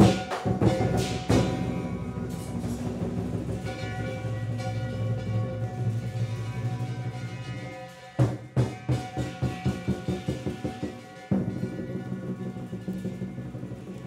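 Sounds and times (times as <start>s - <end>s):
fast drumbeats: 0.0s - 14.0s
loud crashing cymbal strikes: 0.0s - 14.0s
steady ringing tone: 1.9s - 8.3s.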